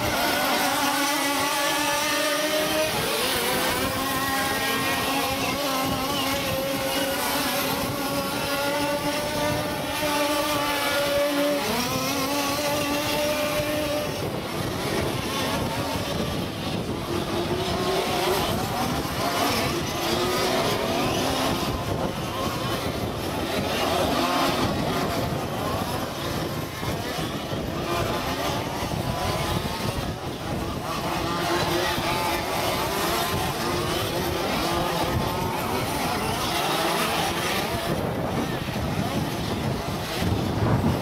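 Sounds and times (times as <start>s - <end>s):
model buggy engines buzzing: 0.0s - 41.0s.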